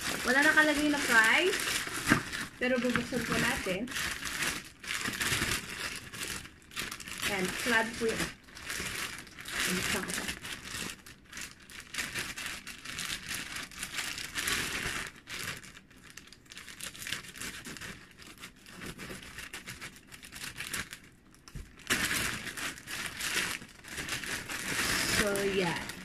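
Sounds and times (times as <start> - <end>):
scissors cutting plastic: 0.0 - 6.4
plastic mailer bag crinkling: 0.0 - 26.0.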